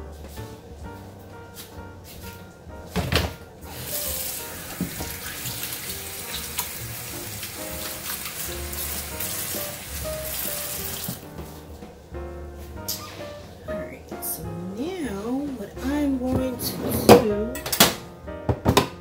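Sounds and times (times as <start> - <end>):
tap water running into sink: 3.7 - 11.3.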